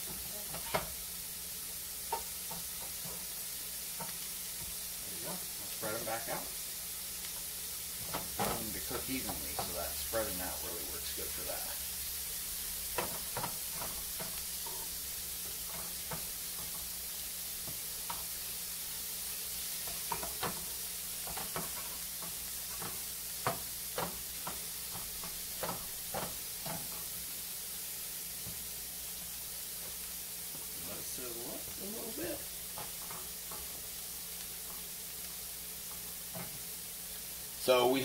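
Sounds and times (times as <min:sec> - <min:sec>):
mushrooms sizzling in butter: 0:00.0 - 0:38.0
spatula scraping and knocking pan: 0:02.0 - 0:06.4, 0:07.3 - 0:11.5, 0:12.6 - 0:17.0, 0:17.6 - 0:27.3, 0:32.6 - 0:34.9, 0:35.7 - 0:36.8.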